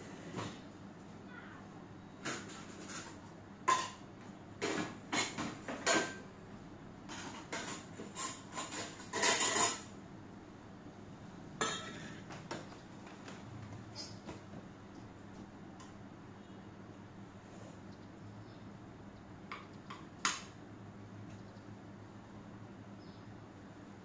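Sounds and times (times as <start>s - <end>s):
dishes and cutlery clinking: 2.2s - 4.0s, 4.6s - 6.3s, 7.1s - 9.9s, 11.6s - 12.6s.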